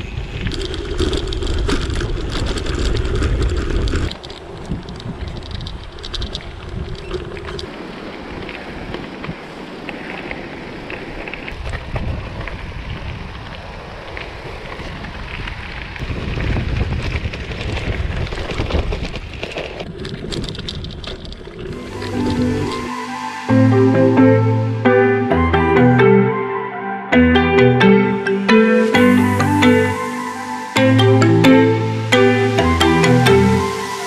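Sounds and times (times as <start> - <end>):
bike clicks and rattles: 0.0 - 9.2, 9.9 - 21.8
bike tyres on gravel: 0.0 - 22.9
wind buffeting microphone: 0.0 - 22.9.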